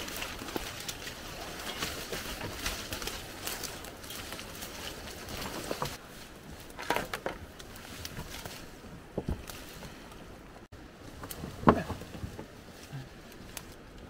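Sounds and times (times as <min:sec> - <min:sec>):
twigs snapping underfoot: 0:00.0 - 0:06.0
footsteps through undergrowth: 0:00.0 - 0:13.9.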